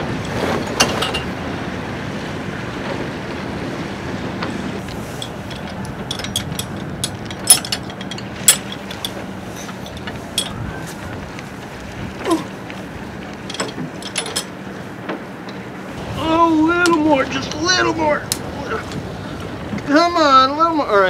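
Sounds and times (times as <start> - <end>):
wind noise on microphone: 0.0 - 21.0
metal fittings clicking and clinking: 4.8 - 10.6, 13.4 - 14.5.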